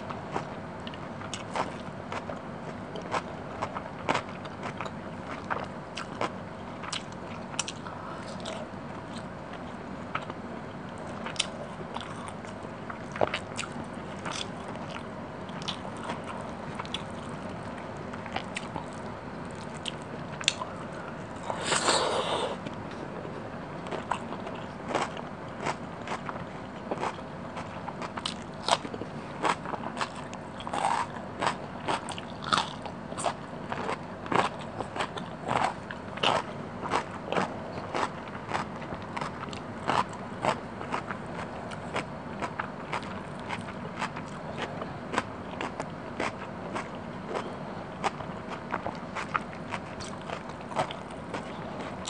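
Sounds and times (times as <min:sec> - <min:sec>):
chewing and wet mouth sounds: 0:00.0 - 0:52.0
crunchy chewing burst: 0:23.8 - 0:52.0.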